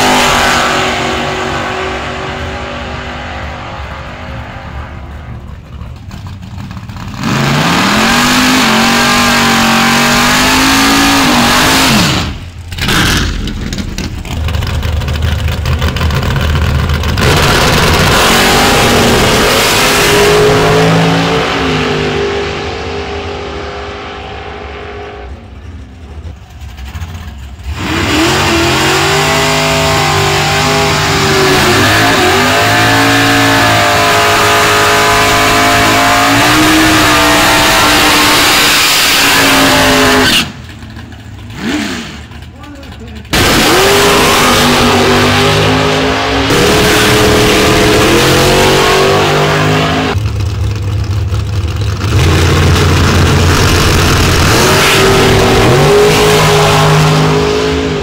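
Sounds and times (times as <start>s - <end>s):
drag race cars accelerating: 0.0s - 58.0s.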